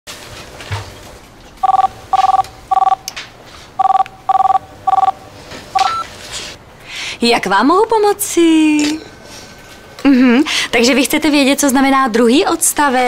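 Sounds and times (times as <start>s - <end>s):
telephone ringing: 1.6s - 3.1s, 3.8s - 5.2s, 5.8s - 6.0s.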